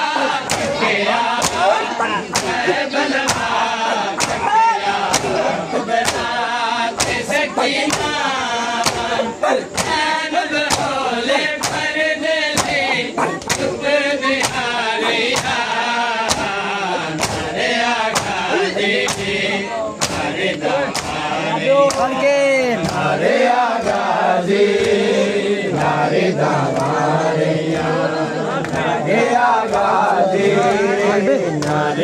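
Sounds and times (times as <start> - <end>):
men chanting together: 0.0 - 32.0
hand slaps on chest: 0.4 - 0.8, 1.4 - 1.7, 2.3 - 2.6, 3.2 - 3.6, 4.2 - 5.4, 6.0 - 6.3, 7.0 - 7.2, 8.8 - 9.1, 9.8 - 10.0, 12.6 - 12.8, 20.9 - 21.2.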